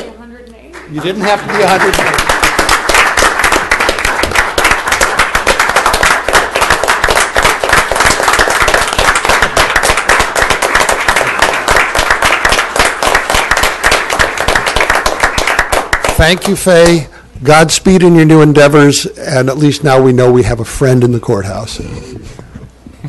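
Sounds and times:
audience applauding: 0.8 - 17.0.

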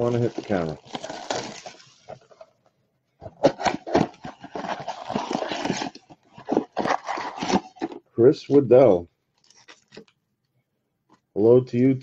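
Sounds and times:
card packs rustling: 0.0 - 2.5, 3.2 - 8.6, 9.4 - 10.2.

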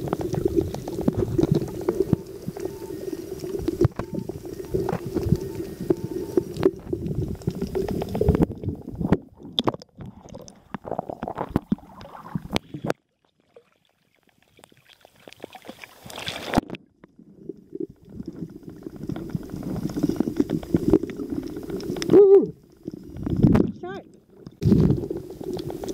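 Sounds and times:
low underwater rumbling wash: 0.0 - 10.6.

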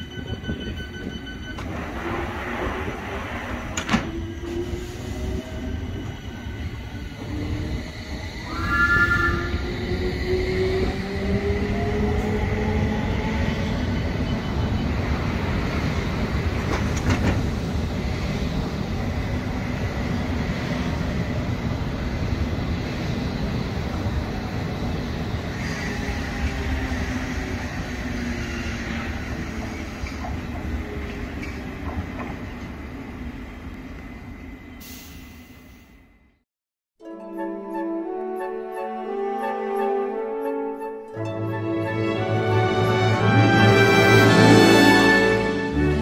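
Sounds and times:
train doors shutting click: 1.5 - 2.8, 3.5 - 4.6, 16.6 - 17.6
train wheel and running noise: 14.3 - 32.8.

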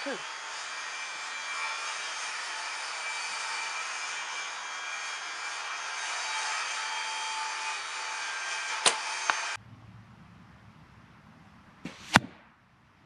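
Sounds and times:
arrow striking target: 11.8 - 12.6.

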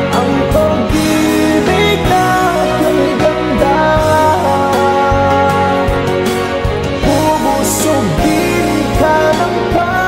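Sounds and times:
backing music: 0.0 - 10.0
woman singing a ballad: 0.1 - 6.1, 7.0 - 10.0.

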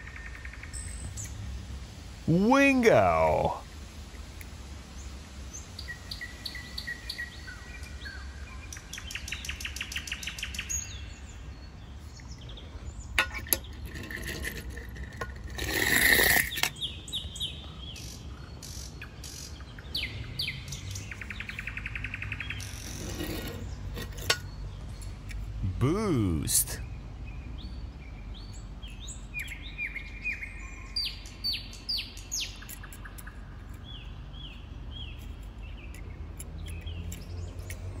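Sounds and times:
small birds singing: 0.0 - 1.6, 4.8 - 15.6, 16.3 - 38.0
toy car rolling down wooden ramp: 13.7 - 16.7.

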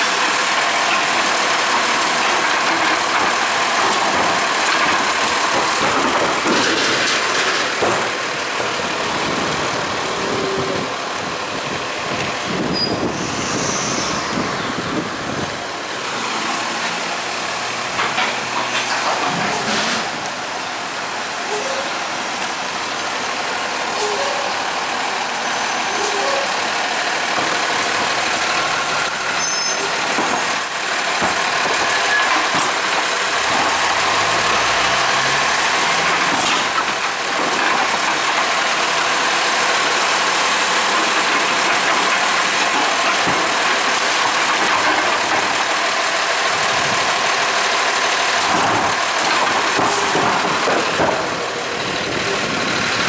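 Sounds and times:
automated arm lifting cart: 0.0 - 53.0
garbage truck diesel engine: 0.0 - 53.0
air brakes hissing: 12.6 - 15.9.

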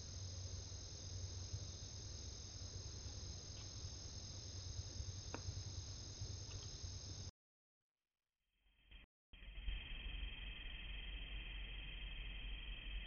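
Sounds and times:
crickets trilling: 0.0 - 7.3
low steady hum: 0.0 - 7.3.

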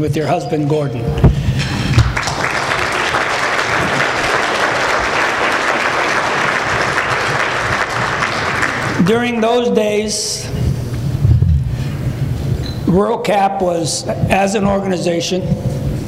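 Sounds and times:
low thumps: 1.0 - 2.2, 10.6 - 11.9
audience applauding: 1.8 - 9.4.

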